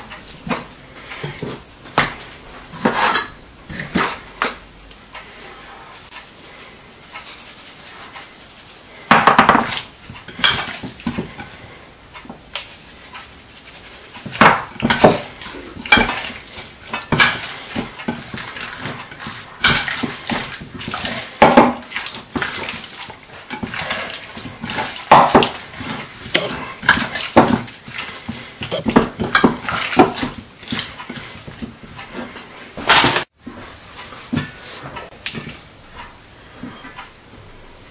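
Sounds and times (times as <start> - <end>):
hands kneading wet raw chicken: 3.6 - 32.6.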